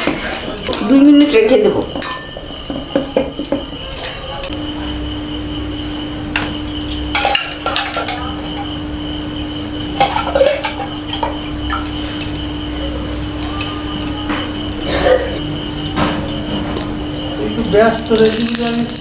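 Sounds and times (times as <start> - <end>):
steady hum: 0.0 - 19.0
steel kitchenware clinking: 1.9 - 2.5.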